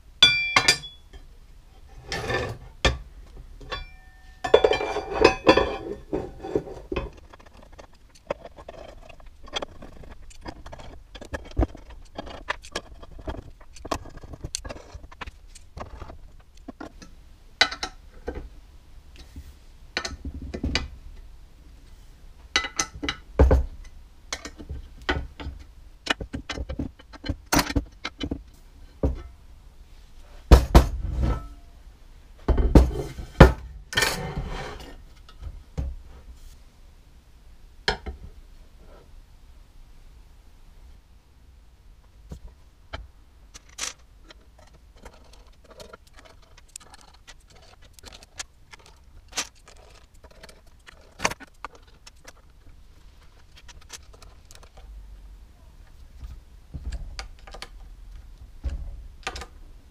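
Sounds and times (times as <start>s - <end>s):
metal tools clinking on aluminium plate: 0.2s - 1.2s, 3.6s - 13.4s.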